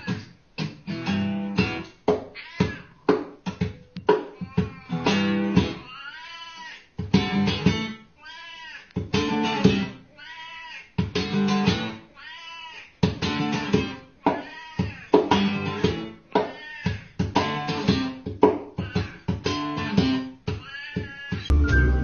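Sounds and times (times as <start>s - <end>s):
acoustic guitar strumming: 0.6s - 2.0s, 7.1s - 8.0s, 9.1s - 10.0s, 11.1s - 12.0s, 13.0s - 14.1s
cat meowing: 2.4s - 3.0s, 12.2s - 12.9s.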